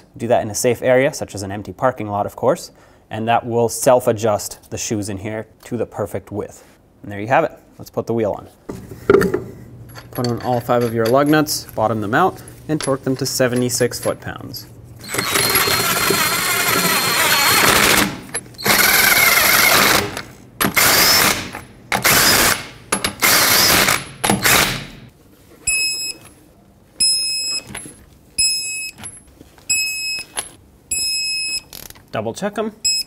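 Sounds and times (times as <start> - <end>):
impact wrench bursts: 15.0 - 25.0.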